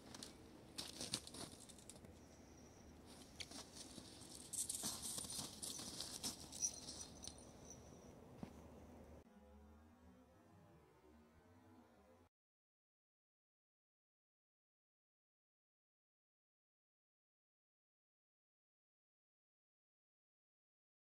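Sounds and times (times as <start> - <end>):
footsteps crunching on snow: 0.0 - 2.0, 3.0 - 7.4.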